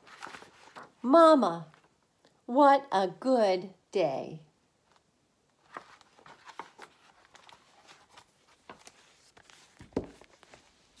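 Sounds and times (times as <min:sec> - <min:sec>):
book rustling and clicking: 0:00.0 - 0:01.0, 0:04.9 - 0:11.0
book closing thump: 0:09.8 - 0:10.2.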